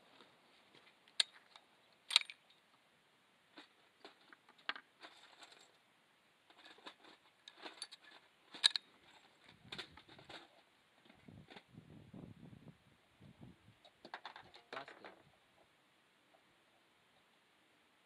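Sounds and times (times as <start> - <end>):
rifle bolt clicking and rattling: 1.2 - 2.4, 7.5 - 8.9.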